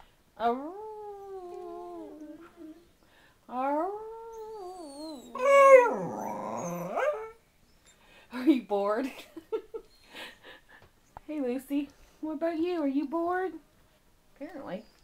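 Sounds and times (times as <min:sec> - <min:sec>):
dog howling: 0:03.8 - 0:07.4.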